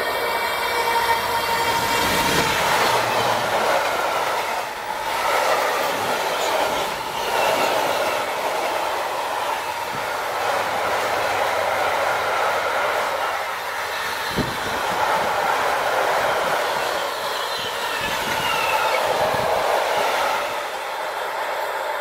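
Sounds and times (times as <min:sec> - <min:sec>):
freight train wheels clattering: 0:00.0 - 0:20.8.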